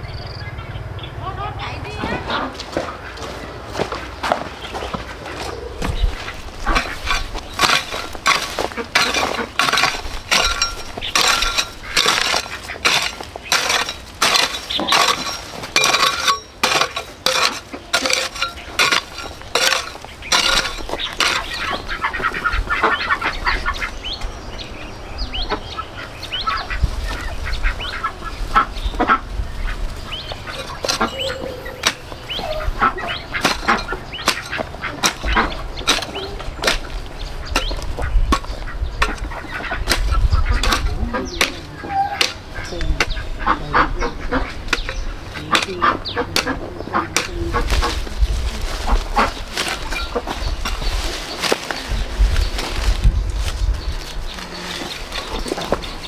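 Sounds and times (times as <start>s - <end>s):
fowl honking calls: 4.8s - 24.0s, 25.4s - 36.4s, 37.5s - 50.4s
fowl chirps: 25.4s - 36.4s.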